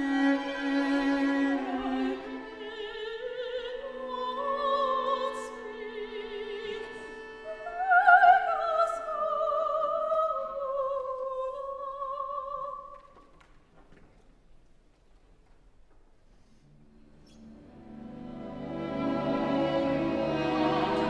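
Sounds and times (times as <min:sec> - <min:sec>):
string orchestra sustained chords: 0:00.0 - 0:08.9, 0:16.8 - 0:21.0
operatic soprano singing: 0:00.0 - 0:13.0, 0:18.4 - 0:21.0.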